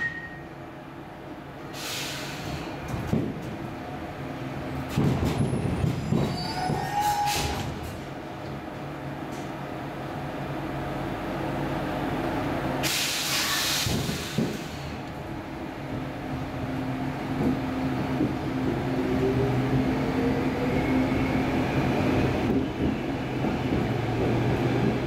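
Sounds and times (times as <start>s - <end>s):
loud air hiss: 1.7s - 2.7s, 12.8s - 15.0s
train equipment humming: 7.5s - 25.0s.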